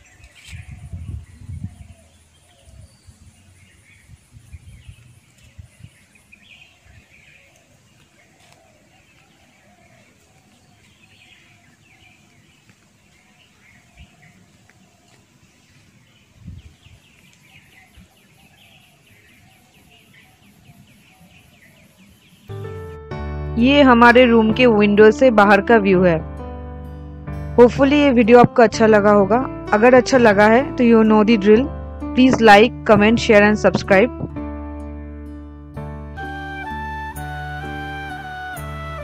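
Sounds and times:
birds chirping: 0:00.0 - 0:23.0
low thumps: 0:26.4 - 0:34.8.

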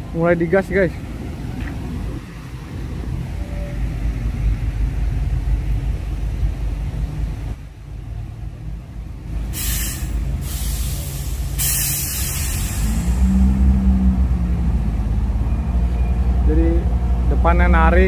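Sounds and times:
diesel trucks rumbling: 0:00.0 - 0:18.0
air release hisses: 0:09.5 - 0:13.2.

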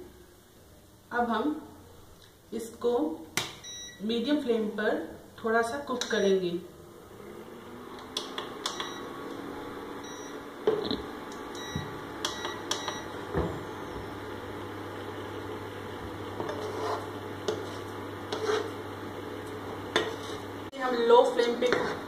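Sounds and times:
cooling fan humming: 0:06.0 - 0:22.0
control button clicks and beeps: 0:11.6 - 0:13.1
spatula stirring in a pan: 0:16.0 - 0:20.7, 0:21.3 - 0:22.0.

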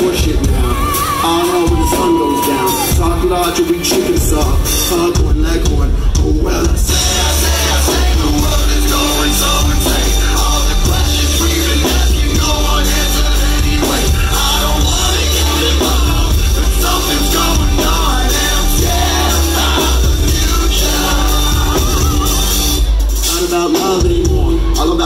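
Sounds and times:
live band music: 0:00.0 - 0:25.0.

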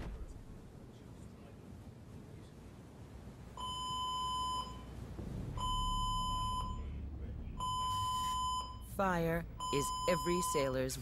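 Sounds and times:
fire alarm beeping: 0:03.6 - 0:04.9, 0:05.6 - 0:06.9, 0:07.6 - 0:08.9, 0:09.6 - 0:11.0
low rumble: 0:04.6 - 0:10.3.

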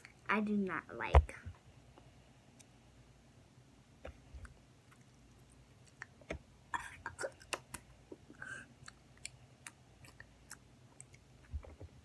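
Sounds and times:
chewing crunchy snacks: 0:08.6 - 0:11.5.

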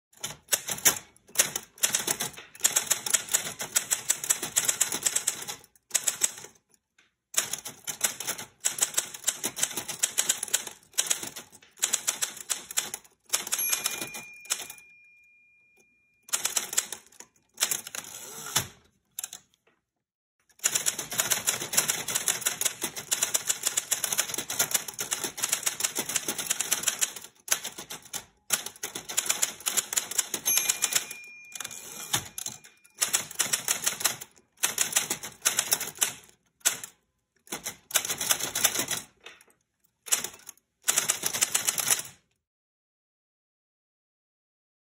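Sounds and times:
typewriter keys clacking: 0:00.2 - 0:06.8, 0:07.4 - 0:19.6, 0:20.5 - 0:42.3
typewriter margin bell ding: 0:13.3 - 0:18.6, 0:29.1 - 0:34.1.

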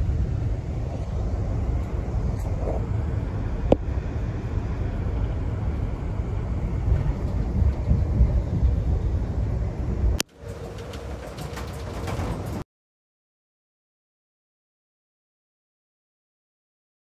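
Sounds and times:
steady hum with held tone: 0:00.0 - 0:10.9
train rumble inside passenger car: 0:00.0 - 0:12.6.

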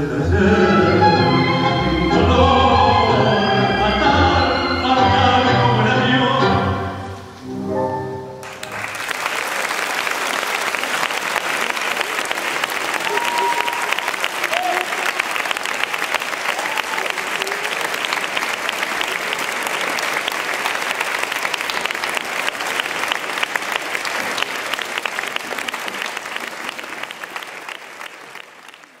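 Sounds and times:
audience clapping: 0:08.4 - 0:29.0.

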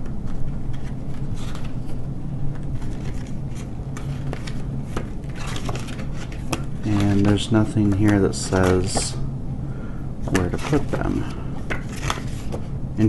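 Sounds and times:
low background hum: 0:00.0 - 0:13.0
pages flipping: 0:00.2 - 0:09.2, 0:10.2 - 0:12.7.

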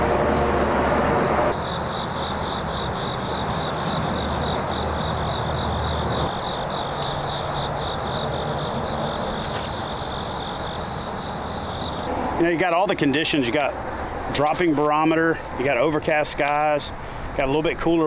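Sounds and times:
distant road traffic: 0:00.0 - 0:18.0
pulsing insect chirp: 0:01.5 - 0:12.1
insects trilling: 0:01.5 - 0:14.6.

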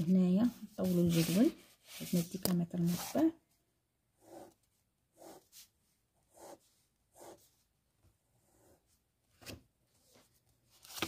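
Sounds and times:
pen scratching on paper: 0:04.2 - 0:05.7, 0:06.3 - 0:07.5.

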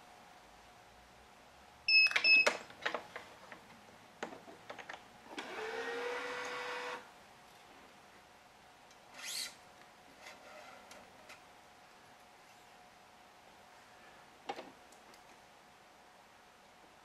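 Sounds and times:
short electronic beeps: 0:01.9 - 0:02.5.

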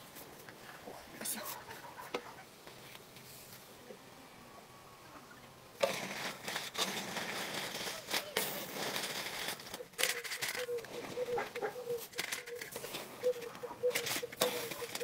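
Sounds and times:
crayfish being handled: 0:07.7 - 0:15.0.

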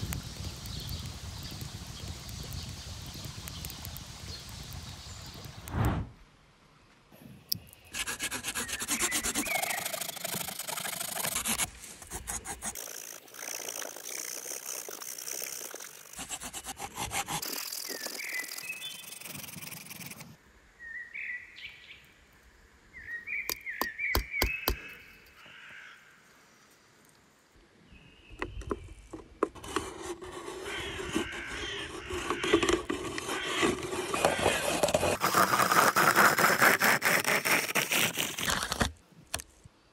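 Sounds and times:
saw blade sawing branch: 0:07.9 - 0:20.4, 0:29.5 - 0:38.9
high bird chirps: 0:08.6 - 0:10.4, 0:17.8 - 0:19.6, 0:23.0 - 0:25.2.

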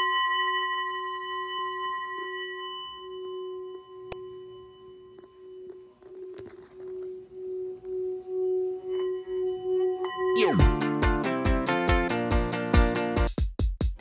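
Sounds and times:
singing bowl ringing: 0:00.0 - 0:11.5.

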